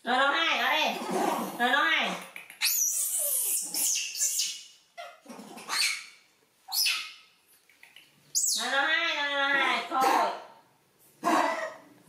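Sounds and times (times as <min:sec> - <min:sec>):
monkeys squealing: 0:02.2 - 0:07.2.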